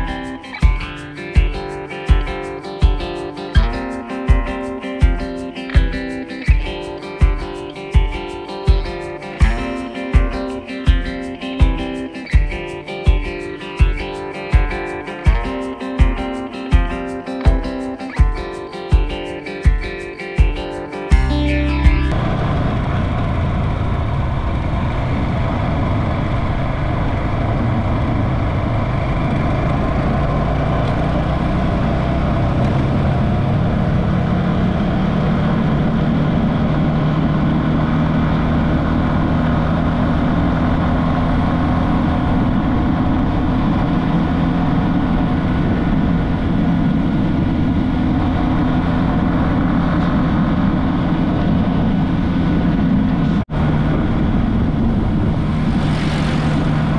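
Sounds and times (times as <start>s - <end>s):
road and wind noise: 21.2s - 56.9s.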